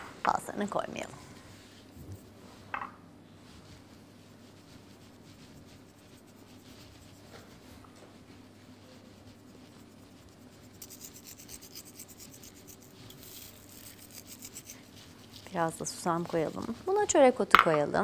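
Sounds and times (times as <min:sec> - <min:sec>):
spices sprinkled on flatbread: 0:03.4 - 0:17.4.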